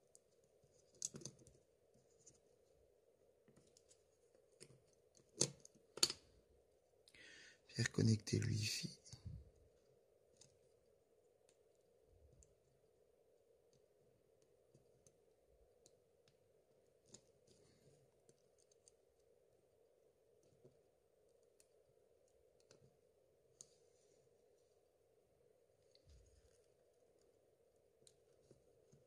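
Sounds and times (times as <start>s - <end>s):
faint ticks and clicks: 20.3s - 23.8s, 25.8s - 29.0s.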